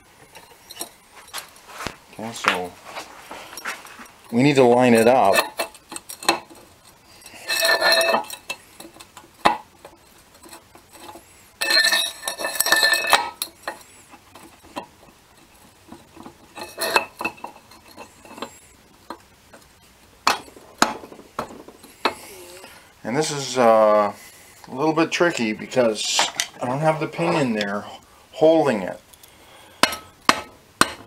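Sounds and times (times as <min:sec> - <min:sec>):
metal clinking and rattling: 0:00.2 - 0:02.7, 0:03.5 - 0:22.7.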